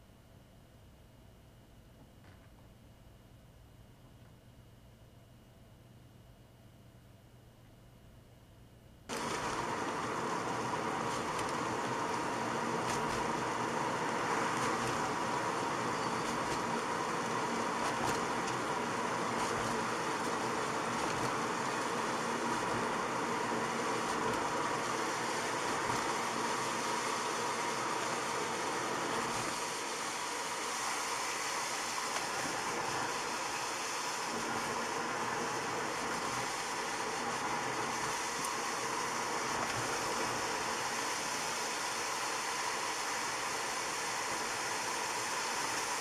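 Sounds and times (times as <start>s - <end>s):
faint steady hum: 0.0s - 46.0s.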